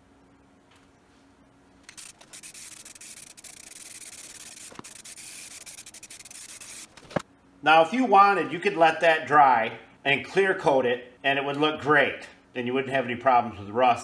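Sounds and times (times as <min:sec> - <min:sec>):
aerosol spray can hissing: 0:01.9 - 0:07.2.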